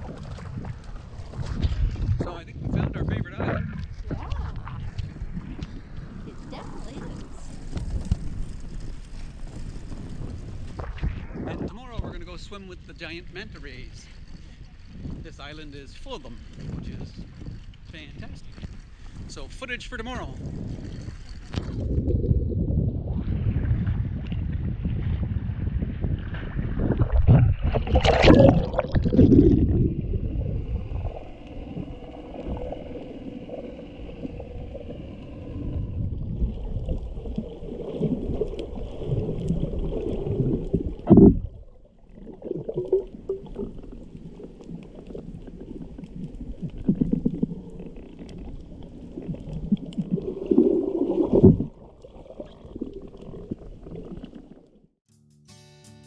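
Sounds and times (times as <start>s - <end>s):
underwater gurgling and bubbling: 0.0s - 15.5s, 20.4s - 54.9s
water splashing and sloshing: 0.0s - 19.7s, 20.3s - 55.0s.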